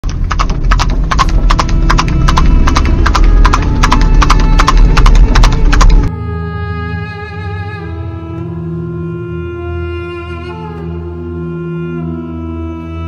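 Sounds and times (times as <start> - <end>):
horse hooves clip-clopping: 0.0 - 6.1.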